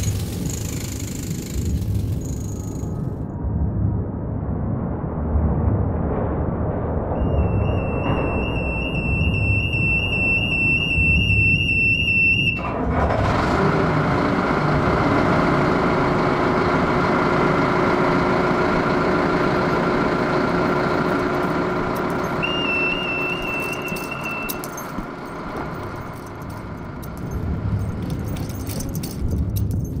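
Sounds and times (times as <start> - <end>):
low rumble: 0.0 - 30.0
high pulsing tone: 7.2 - 12.6, 21.4 - 26.9.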